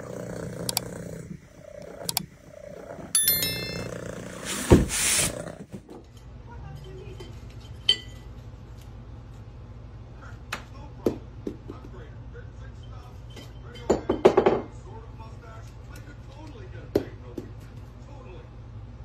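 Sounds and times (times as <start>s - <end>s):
ringing tones: 3.2s - 4.2s.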